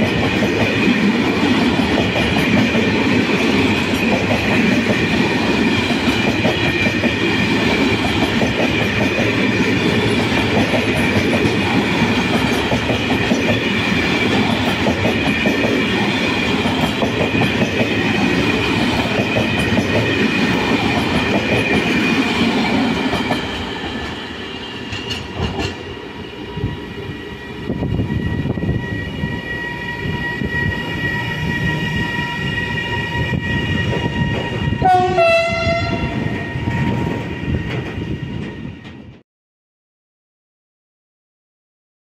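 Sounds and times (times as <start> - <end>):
freight train wheel rumble: 0.0 - 39.2
train wheel whine: 0.0 - 39.2
train horn blast: 31.7 - 37.0.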